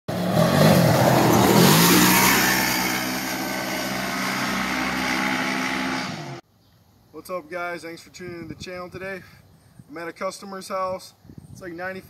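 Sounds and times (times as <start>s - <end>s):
utility vehicle engine revving: 0.1s - 6.4s.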